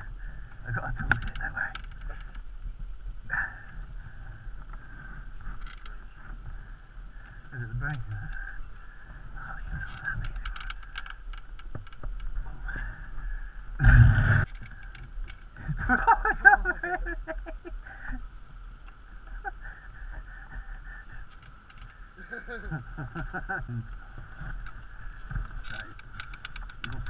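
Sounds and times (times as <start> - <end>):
steady background hiss: 0.0 - 27.0
rustle on camera: 0.5 - 13.5.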